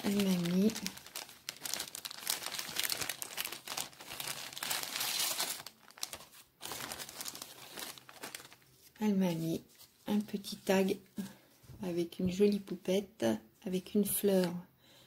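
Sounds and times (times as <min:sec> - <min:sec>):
cellophane sleeve crinkling: 0:00.0 - 0:10.8.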